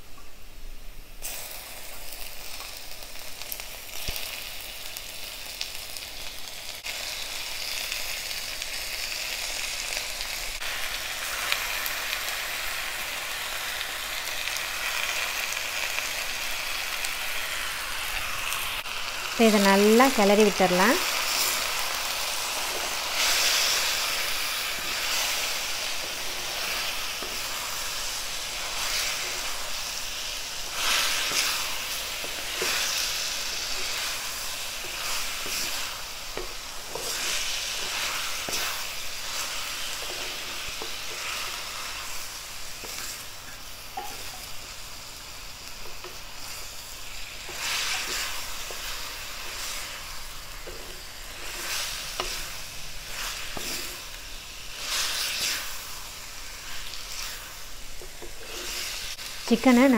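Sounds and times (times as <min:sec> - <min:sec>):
chicken sizzling in hot oil: 0:01.2 - 0:59.9
wooden spatula scraping pan: 0:34.8 - 0:41.9, 0:58.0 - 0:59.1.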